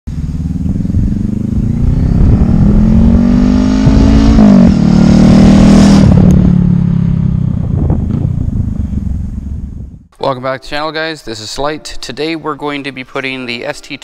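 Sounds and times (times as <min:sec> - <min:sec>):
motorcycle engine accelerating: 0:00.1 - 0:10.1.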